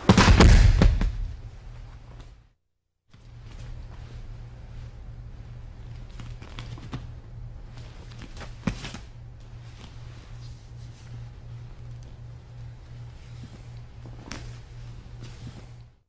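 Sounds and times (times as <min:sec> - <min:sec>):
sharp thud: 0:00.0 - 0:01.5
steady low hum: 0:00.0 - 0:16.0
rustling of cloth uniforms: 0:03.1 - 0:16.0.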